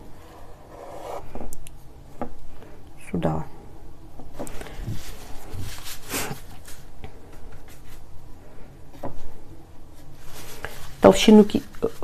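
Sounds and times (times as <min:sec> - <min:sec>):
brush swishing paint on canvas: 0:04.9 - 0:08.1.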